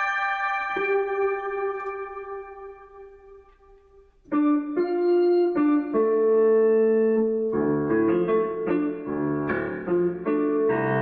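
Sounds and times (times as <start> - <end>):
solo piano chords: 4.3 - 11.0.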